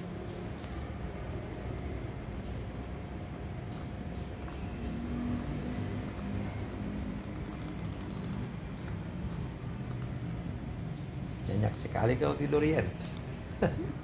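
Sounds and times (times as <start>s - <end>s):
laptop keys typing: 4.4s - 4.7s, 5.4s - 6.4s, 7.2s - 8.5s, 9.9s - 10.1s.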